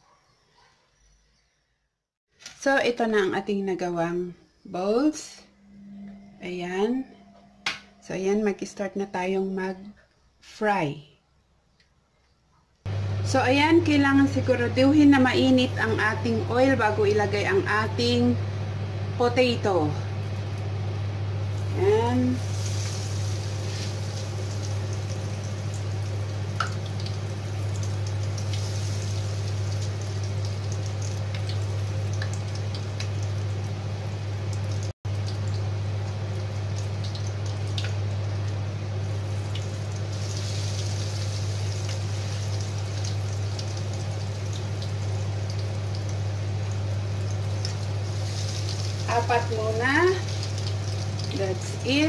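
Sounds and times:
low hum: 4.3 - 9.2, 12.8 - 52.0
oil bubbling and crackling: 20.1 - 52.0.

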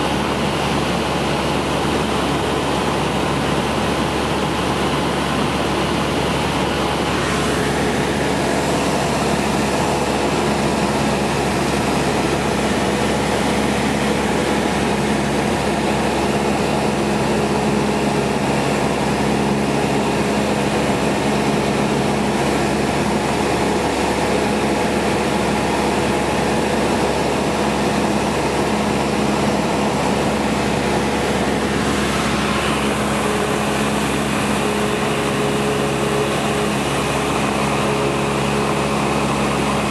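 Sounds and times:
propeller aircraft engine hum: 0.0 - 39.9
rush of air: 29.2 - 35.7.

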